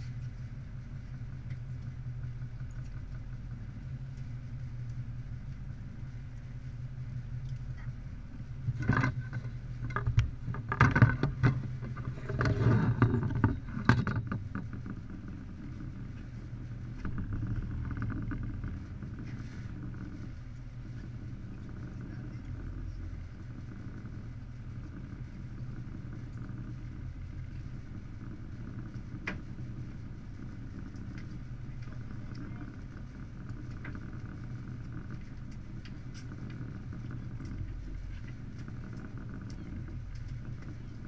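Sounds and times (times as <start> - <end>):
boat engine running: 0.0 - 41.0
knocks and thumps: 8.7 - 15.0.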